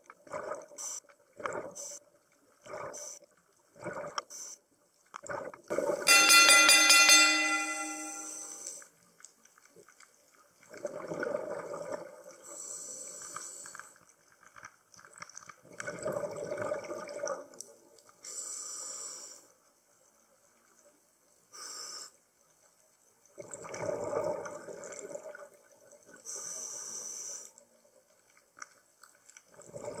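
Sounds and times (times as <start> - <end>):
exhaled bubbles gurgling: 3.7 - 4.2, 10.7 - 12.5, 15.6 - 17.6, 23.4 - 26.2, 29.6 - 30.0
regulator inhale hiss: 12.5 - 14.0, 18.2 - 19.6, 21.5 - 22.2, 26.3 - 27.6.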